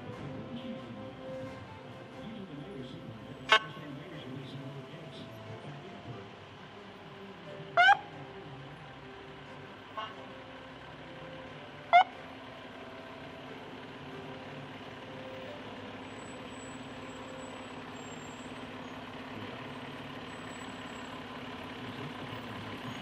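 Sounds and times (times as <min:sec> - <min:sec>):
vehicle engine running: 0:00.0 - 0:23.0
vehicle horn toot: 0:03.5 - 0:03.9.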